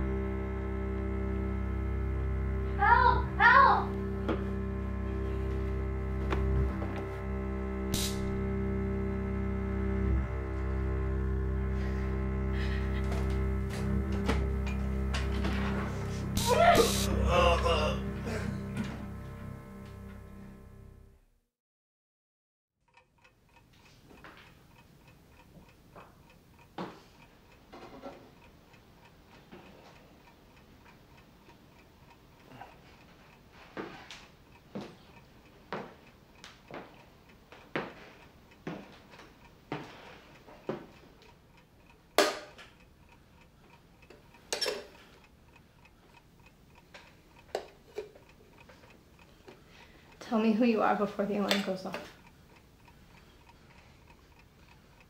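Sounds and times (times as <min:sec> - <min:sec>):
alarm clock ticking: 0:00.0 - 0:21.0, 0:22.9 - 0:55.0.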